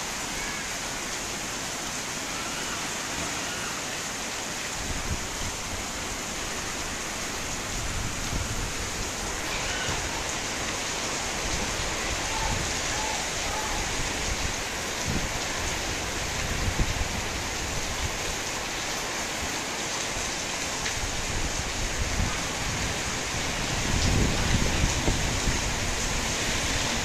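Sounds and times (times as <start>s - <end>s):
heavy rain on metal roofs: 0.0s - 27.0s.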